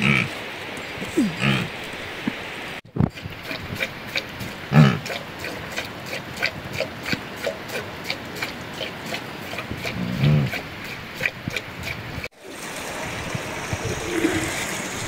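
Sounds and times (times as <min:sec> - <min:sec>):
yak grunting: 0:00.0 - 0:00.4, 0:01.0 - 0:01.8, 0:03.4 - 0:11.6.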